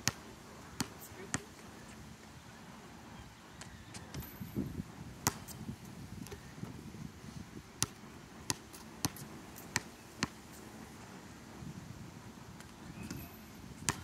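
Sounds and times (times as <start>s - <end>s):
basketball bouncing on hard court: 5.2s - 5.6s, 7.8s - 10.4s, 13.0s - 14.0s.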